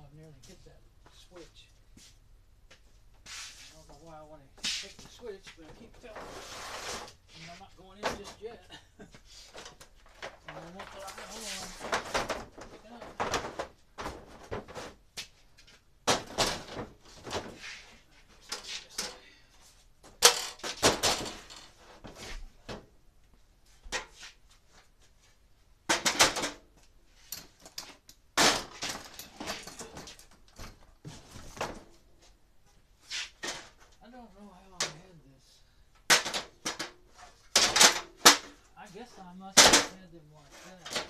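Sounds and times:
hard objects clattering and knocking: 9.5 - 15.0, 15.6 - 17.7, 20.0 - 22.9, 25.8 - 32.1, 36.0 - 38.7.

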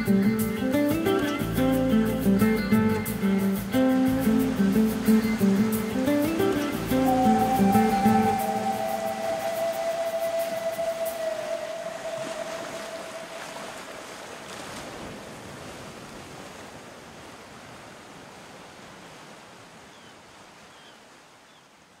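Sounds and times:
steady rushing noise: 1.2 - 14.0
held tone: 5.2 - 13.8.

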